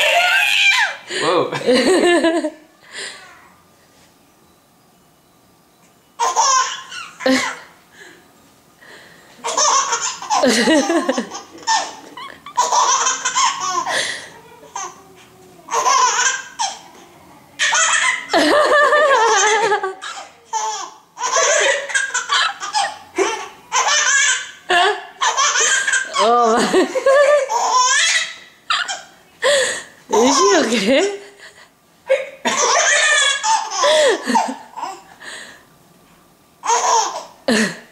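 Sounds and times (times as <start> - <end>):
baby laughing: 6.2 - 7.7, 9.4 - 17.0, 17.6 - 29.1, 30.1 - 31.3, 32.1 - 35.1, 36.6 - 37.4.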